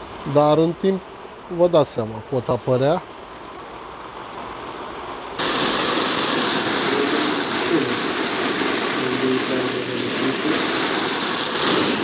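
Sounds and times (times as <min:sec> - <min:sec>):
hose water spraying on tent fabric: 0:05.4 - 0:12.0.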